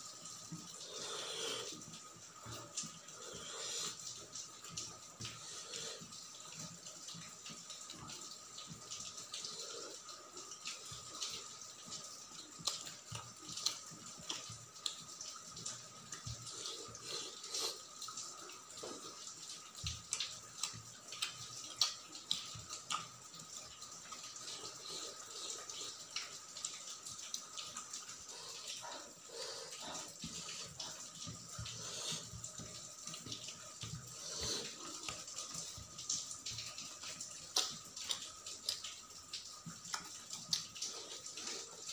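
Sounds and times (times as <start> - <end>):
wet chewing and lip smacking: 12.6 - 15.0, 20.0 - 23.2, 36.5 - 39.0, 39.6 - 41.6.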